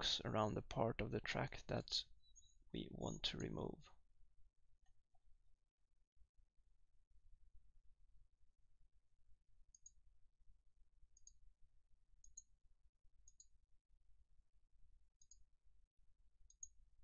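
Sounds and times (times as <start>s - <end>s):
faint mouse clicks: 9.7s - 10.0s, 11.2s - 11.4s, 12.2s - 12.5s, 13.2s - 13.5s, 15.2s - 15.4s, 16.5s - 16.8s.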